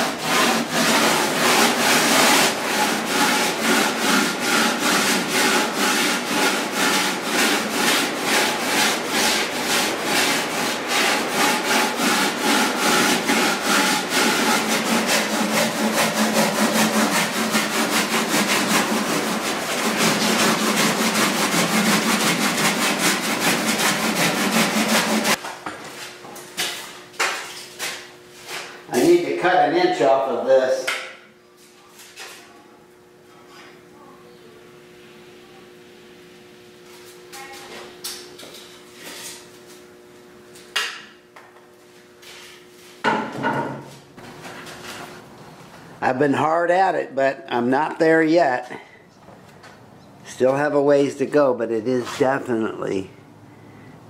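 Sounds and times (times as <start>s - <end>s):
sanding block scraping foam: 0.0s - 25.4s.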